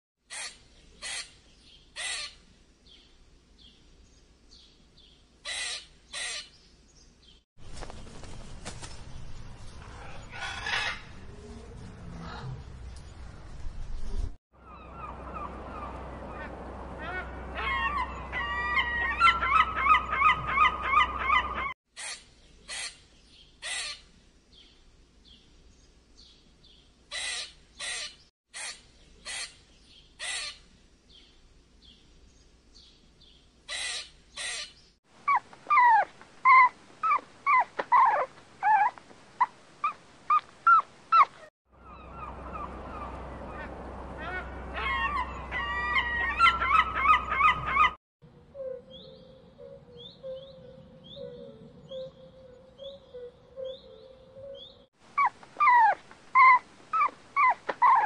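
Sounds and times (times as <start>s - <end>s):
wavering animal calls: 14.6s - 21.8s, 35.2s - 58.0s
chirping calls: 14.6s - 23.0s, 33.7s - 48.0s, 48.6s - 58.0s.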